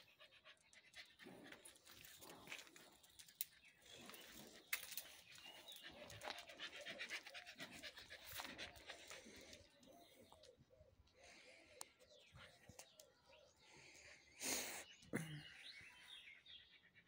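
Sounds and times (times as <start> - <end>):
rapid panting breaths: 0.0 - 10.4.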